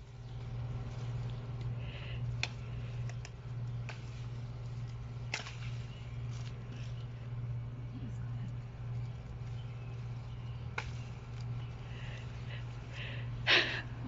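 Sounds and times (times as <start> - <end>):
steady low hum: 0.0 - 14.0
loppers clicking and snapping: 1.2 - 7.0.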